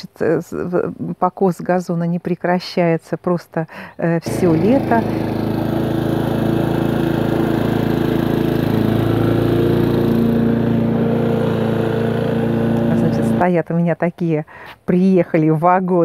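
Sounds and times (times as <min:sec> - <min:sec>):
lawn mower cutting grass: 0:04.2 - 0:13.5.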